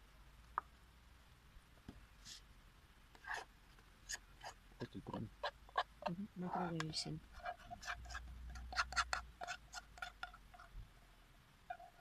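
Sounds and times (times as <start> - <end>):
saucepan scrapes and knocks: 7.3 - 10.7.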